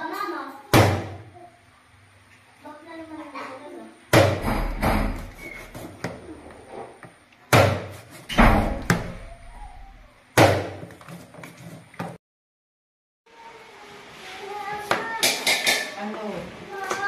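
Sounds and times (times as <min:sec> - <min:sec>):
knife chopping on cutting board: 0:07.5 - 0:08.2.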